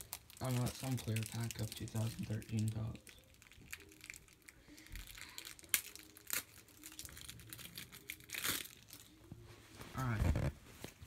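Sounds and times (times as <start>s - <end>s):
card pack wrapper crinkling: 0.0s - 9.2s.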